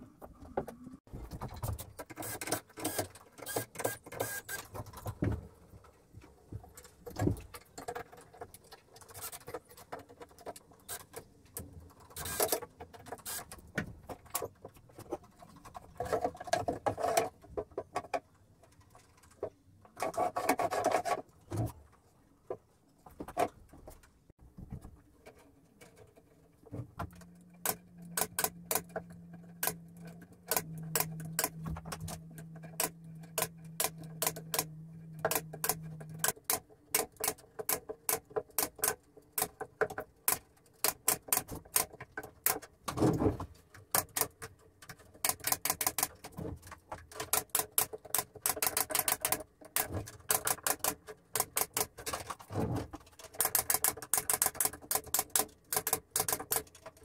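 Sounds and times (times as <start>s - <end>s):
low steady hum: 26.8s - 36.3s.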